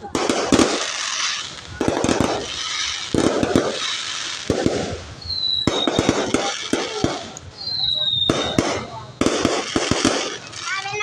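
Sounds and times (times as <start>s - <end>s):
crackling hiss: 0.0s - 11.0s
fireworks bursting: 0.0s - 11.0s
short high whistle: 5.2s - 5.9s, 7.6s - 8.6s.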